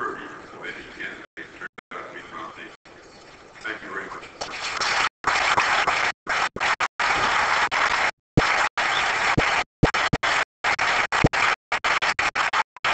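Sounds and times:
audience applauding: 4.8s - 12.9s.

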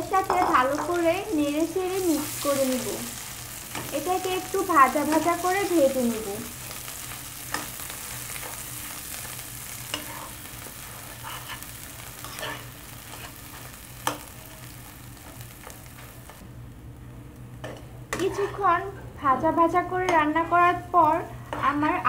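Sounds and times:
food sizzling in a pan: 0.0s - 22.0s
metal spatula scraping pan: 9.9s - 10.4s, 11.0s - 13.4s, 18.2s - 18.6s.

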